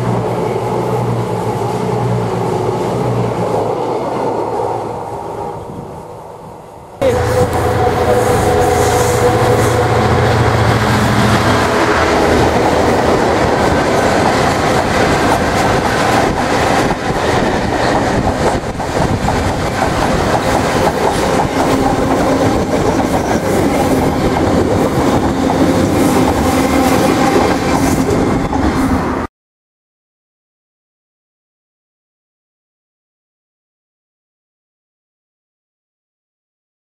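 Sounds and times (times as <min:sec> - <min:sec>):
diesel locomotive engine: 0:00.0 - 0:29.3.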